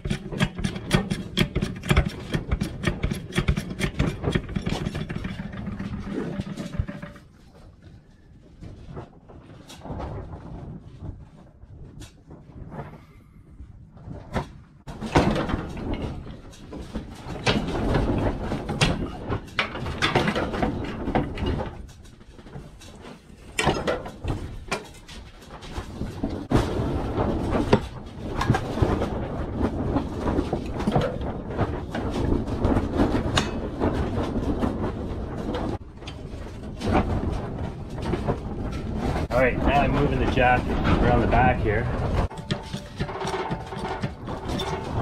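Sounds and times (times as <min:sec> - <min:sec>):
metal parts clanking and scraping: 0:00.0 - 0:07.6, 0:14.9 - 0:26.6, 0:29.9 - 0:45.0.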